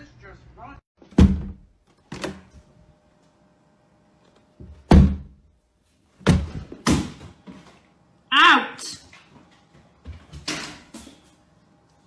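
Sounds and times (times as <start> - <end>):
door thumping against frame: 1.1 - 2.4, 4.6 - 5.4.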